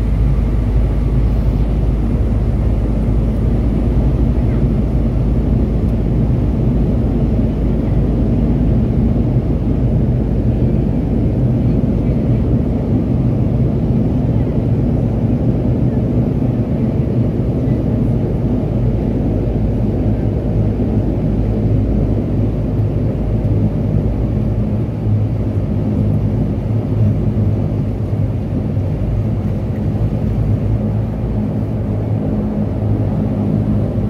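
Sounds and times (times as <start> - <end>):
turboprop aircraft cabin drone: 0.0 - 34.0.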